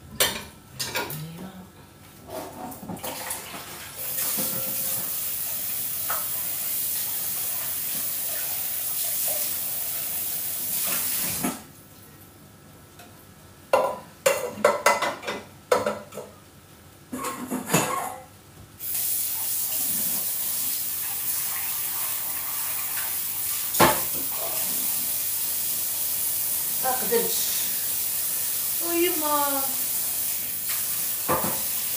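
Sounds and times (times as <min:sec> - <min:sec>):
dishes and pots clattering: 0:00.1 - 0:01.2, 0:04.2 - 0:05.0, 0:13.7 - 0:16.4, 0:17.1 - 0:18.3, 0:31.2 - 0:31.7
water running from tap: 0:03.0 - 0:11.6, 0:18.8 - 0:31.9.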